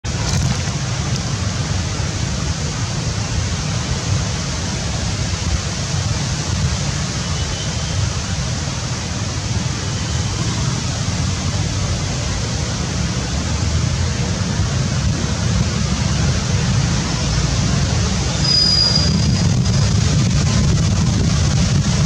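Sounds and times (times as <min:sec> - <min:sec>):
wind buffeting microphone: 0:19.0 - 0:22.0.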